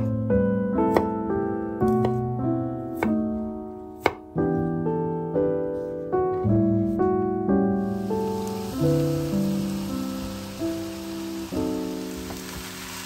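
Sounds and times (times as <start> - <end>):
gentle piano music: 0.0 - 13.0
knife chopping on wooden board: 0.9 - 1.1, 1.9 - 2.2, 2.9 - 3.2, 4.0 - 4.2.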